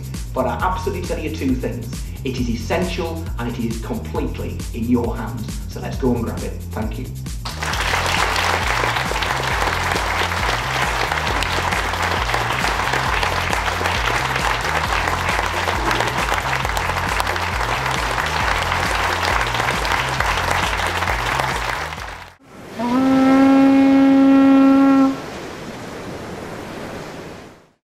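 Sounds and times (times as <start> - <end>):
background music with bass line: 0.0 - 22.4
audience applauding: 7.5 - 22.4.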